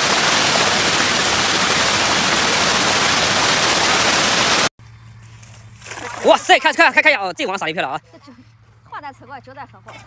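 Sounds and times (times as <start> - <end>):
fish splashing at water surface: 5.8 - 6.6.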